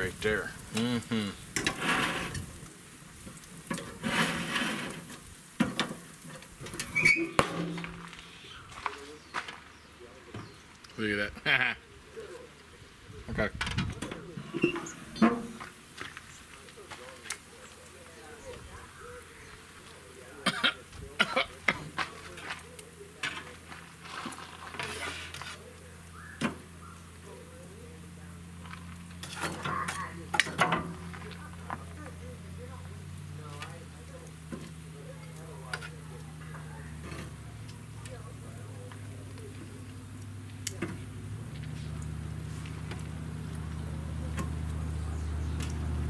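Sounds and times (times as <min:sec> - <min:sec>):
grill sizzling: 0:00.0 - 0:46.0
grill lid clanging shut: 0:13.6 - 0:15.6, 0:29.2 - 0:31.0
tongs clicking on grill grates: 0:28.6 - 0:32.3, 0:32.9 - 0:45.9.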